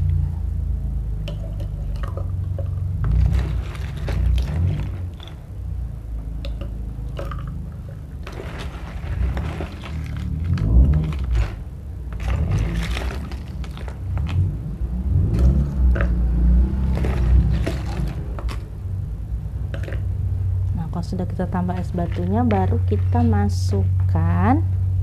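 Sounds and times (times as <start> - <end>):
ice cubes clinking and scraping: 1.3 - 5.4, 8.2 - 14.5, 15.4 - 18.7, 21.7 - 23.3
ice dropping into glass jar: 1.3 - 5.4, 8.2 - 14.4.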